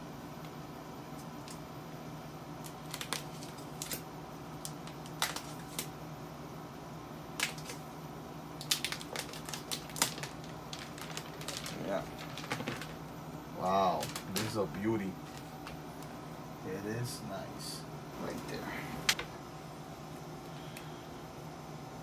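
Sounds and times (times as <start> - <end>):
steady low hum: 0.0 - 22.0
plastic film crackling: 2.7 - 4.0, 4.6 - 5.9, 7.3 - 7.8, 8.6 - 16.1.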